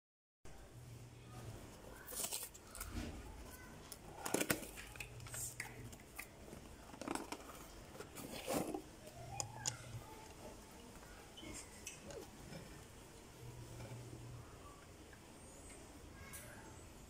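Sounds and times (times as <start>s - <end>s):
hands handling cardboard box: 6.6s - 8.9s.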